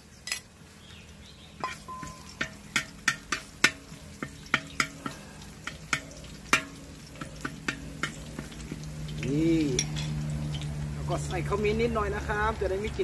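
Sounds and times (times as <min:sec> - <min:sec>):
garlic sizzling in oil: 0:00.0 - 0:13.0
metal spoon clicking on wok: 0:01.7 - 0:06.8.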